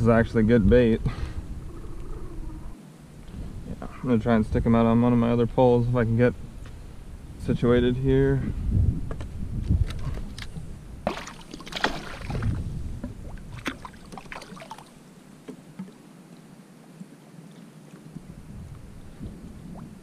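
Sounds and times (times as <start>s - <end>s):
water lapping against hull: 9.9s - 16.5s.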